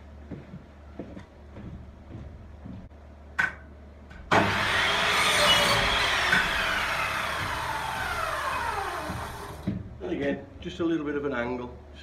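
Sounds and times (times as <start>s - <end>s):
power saw cutting timber: 4.3s - 9.6s.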